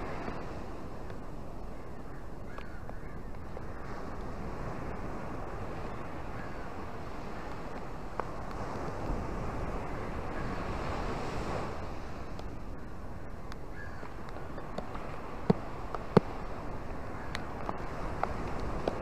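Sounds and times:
ocean waves washing over sand: 0.0 - 19.0.

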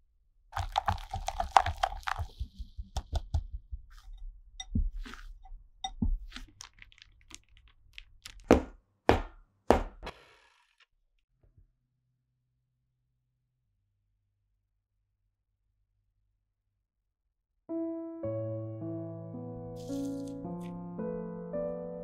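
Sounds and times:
whisk beating in glass bowl: 0.6 - 3.3.

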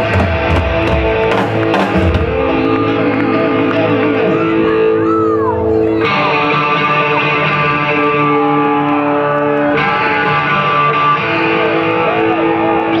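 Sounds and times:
electric guitar chords: 0.0 - 13.0
hard rock band playing: 0.0 - 13.0.

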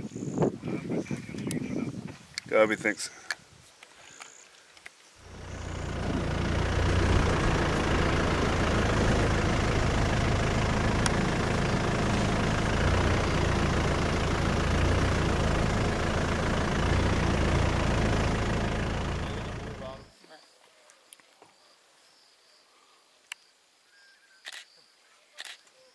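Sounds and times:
vehicle engine rumbling: 5.2 - 20.1.

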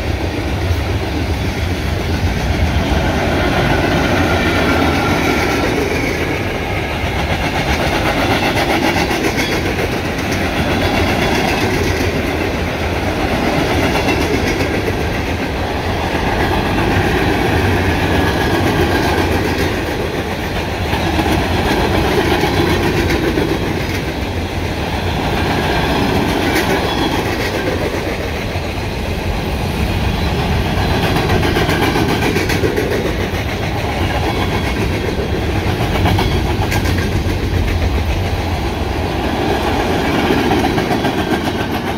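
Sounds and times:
freight train wheels clacking on rail: 0.0 - 41.9.

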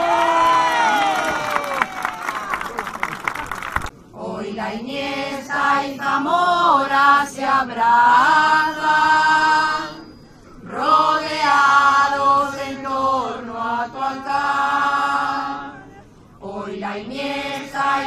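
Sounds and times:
group singing a hymn: 4.1 - 18.0.

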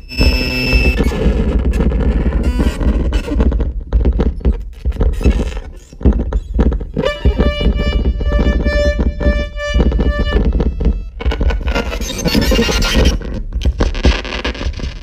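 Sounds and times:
stuttering electronic noise rumble: 6.0 - 15.0
steady synthesizer tone: 7.0 - 11.7.

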